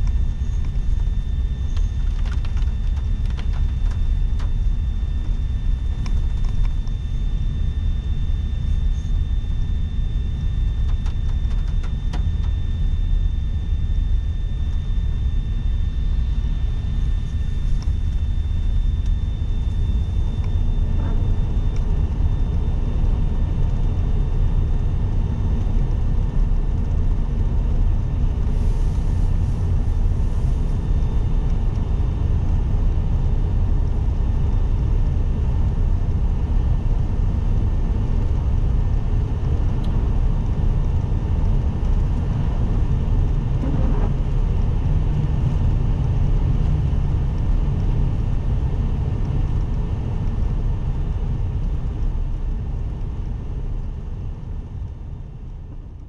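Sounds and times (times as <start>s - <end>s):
tyre and engine rumble: 41.4s - 45.8s.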